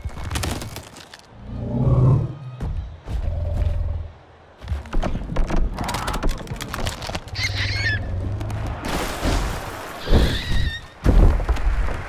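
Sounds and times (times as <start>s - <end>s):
warbling squawk-like animal calls: 7.3s - 8.2s.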